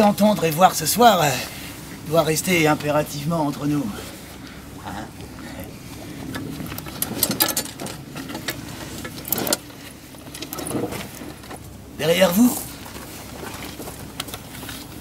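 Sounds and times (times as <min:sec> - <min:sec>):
rustling in a bag: 0:12.4 - 0:15.0.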